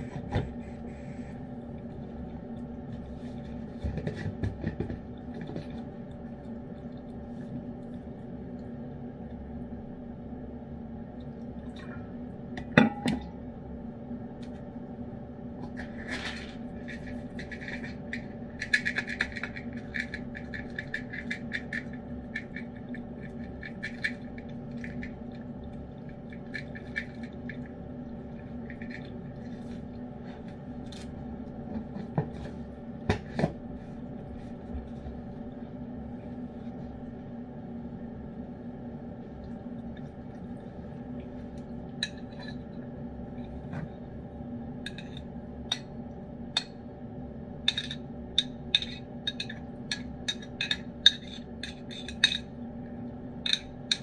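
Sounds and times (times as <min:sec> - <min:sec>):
low hum: 0:00.0 - 0:54.0.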